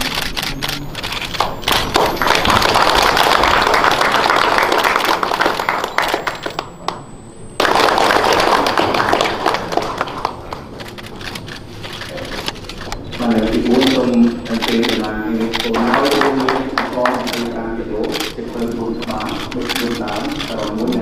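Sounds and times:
audience applauding: 0:01.3 - 0:07.0, 0:07.6 - 0:11.0, 0:14.6 - 0:17.5.

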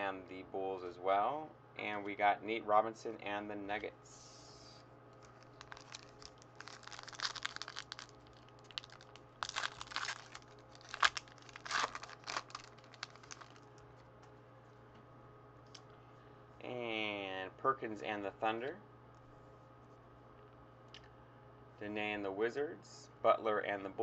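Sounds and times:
foil wrapper tearing and crinkling: 0:05.2 - 0:13.7.

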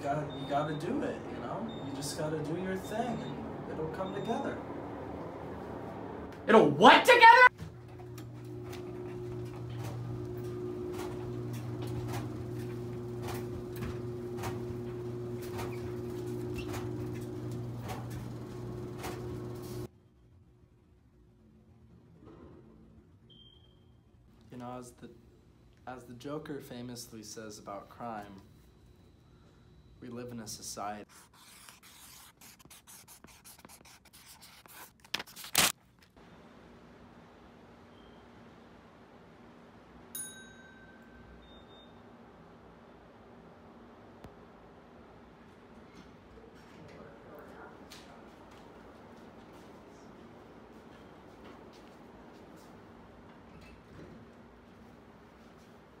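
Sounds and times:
laundry machines humming: 0:00.0 - 0:19.9
faint room hum: 0:00.0 - 0:56.0
pen scratching on paper: 0:31.1 - 0:35.7.

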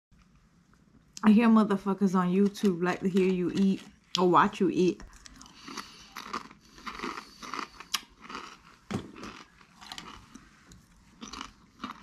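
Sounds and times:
food crunching: 0:02.4 - 0:12.0
person chewing food: 0:05.0 - 0:12.0.

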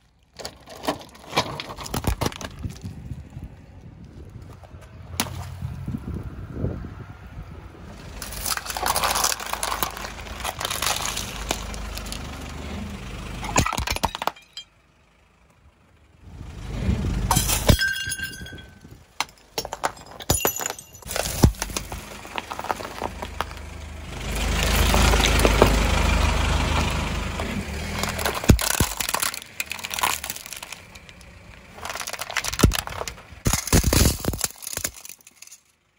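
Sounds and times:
plastic cracking and crunching: 0:00.0 - 0:03.3, 0:08.2 - 0:12.2, 0:21.0 - 0:23.7, 0:27.9 - 0:35.7
glass breaking with clinks: 0:13.4 - 0:14.7, 0:17.3 - 0:21.6.

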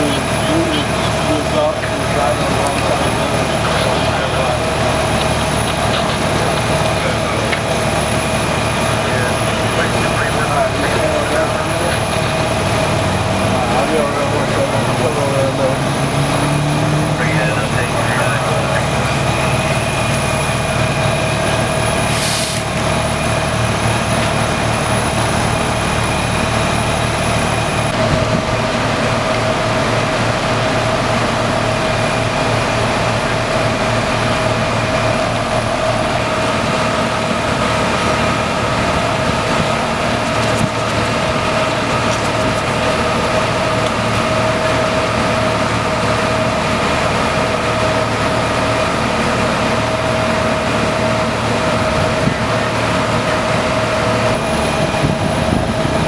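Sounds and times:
constant whine: 0:00.0 - 0:56.0
idling engines and generators: 0:00.0 - 0:56.0
short hiss: 0:22.1 - 0:22.7.

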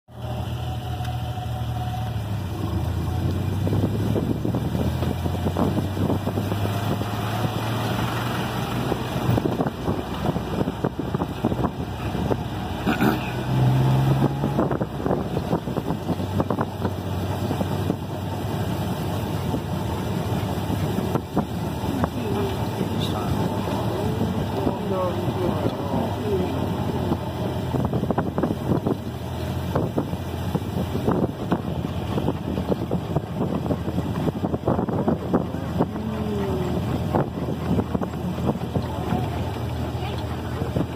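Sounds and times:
cab knocks and rattles: 0:36.6 - 0:40.9.

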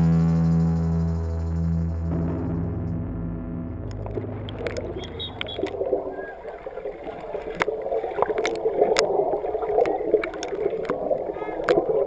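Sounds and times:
guitar music: 0:00.0 - 0:05.8
sharp clicks: 0:03.8 - 0:05.8
pool water sloshing and splashing: 0:04.2 - 0:12.0.

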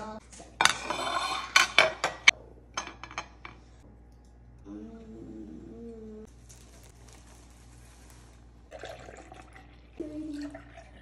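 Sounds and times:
milk pouring into a glass: 0:08.7 - 0:11.0.

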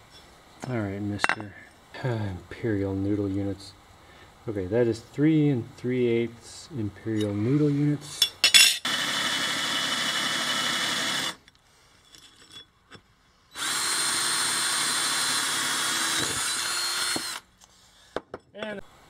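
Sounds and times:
drill boring through metal: 0:08.8 - 0:11.4, 0:13.6 - 0:17.5.

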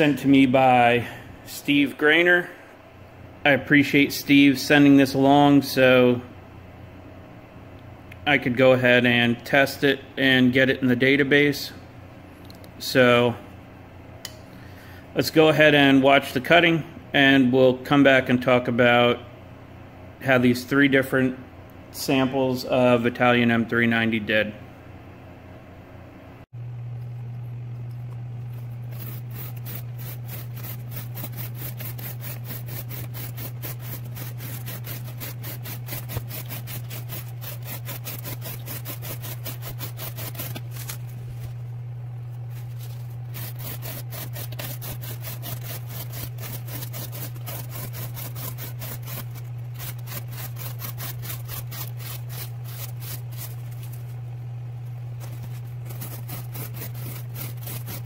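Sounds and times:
steady low hum: 0:00.0 - 0:58.0
knife slicing cardboard: 0:28.9 - 0:41.1, 0:42.6 - 0:54.1, 0:55.2 - 0:58.0.

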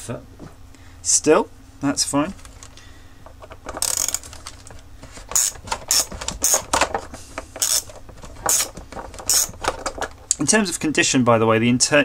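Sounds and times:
plastic parts clicking and knocking: 0:02.4 - 0:10.2.

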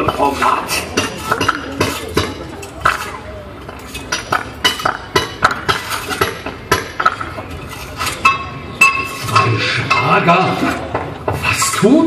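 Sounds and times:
hammers and chisels on stone: 0:00.8 - 0:03.2, 0:04.1 - 0:07.3.

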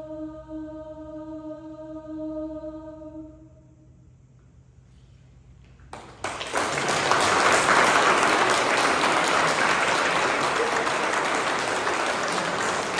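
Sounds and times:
audience applause: 0:05.9 - 0:12.9.

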